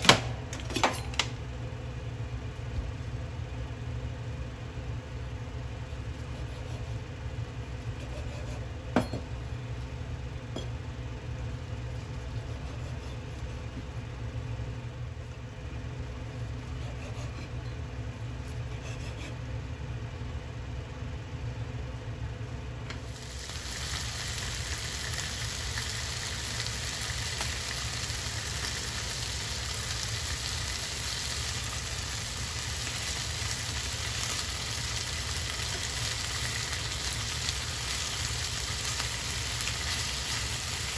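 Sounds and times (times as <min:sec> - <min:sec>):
knife on wooden cutting board: 0:08.0 - 0:08.7, 0:12.4 - 0:13.6, 0:16.7 - 0:17.6
chicken sizzling in frying pan: 0:23.0 - 0:40.9.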